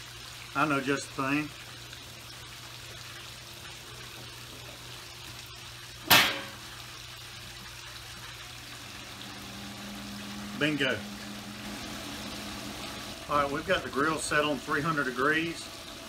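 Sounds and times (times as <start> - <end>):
sharp knock: 6.1 - 6.6.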